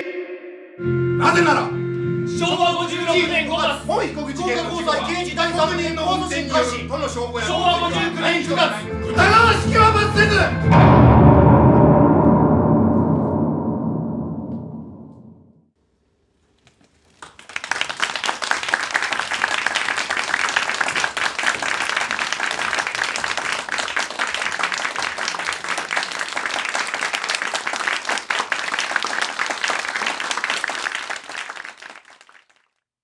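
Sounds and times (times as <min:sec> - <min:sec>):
audience applauding: 0:17.2 - 0:32.8.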